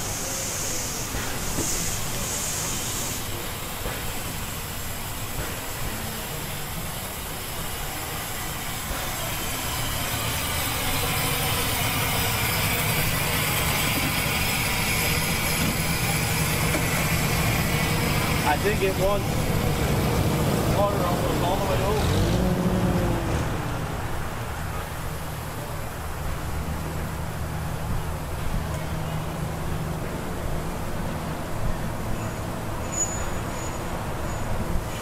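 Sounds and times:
steam hissing: 0:00.0 - 0:25.5
low engine hum: 0:08.9 - 0:32.0.

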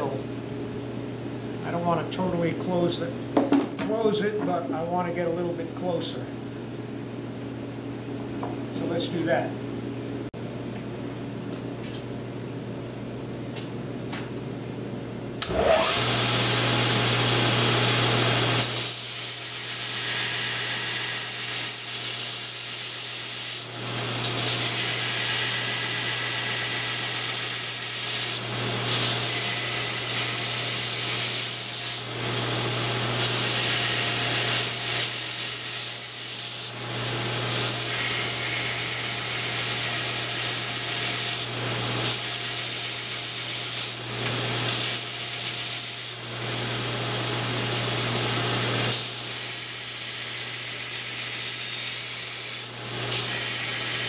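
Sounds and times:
belt sander grinding steel: 0:24.2 - 0:32.0, 0:37.6 - 0:43.8.

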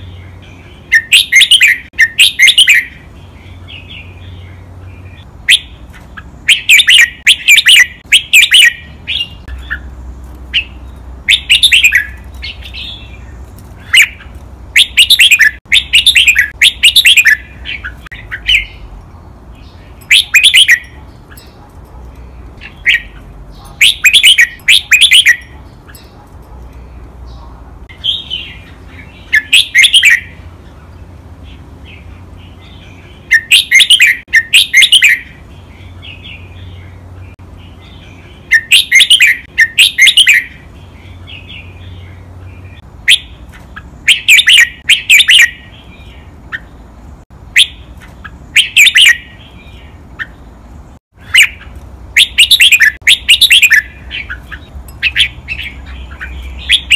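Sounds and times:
bird singing: 0:00.0 - 0:56.9
soft bird chattering: 0:05.0 - 0:19.0, 0:19.6 - 0:30.4, 0:51.2 - 0:56.9.

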